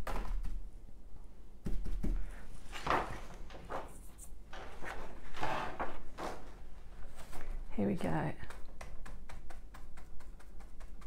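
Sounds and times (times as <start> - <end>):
materials rustling: 2.2 - 7.7
stencil brush tapping: 8.4 - 11.0.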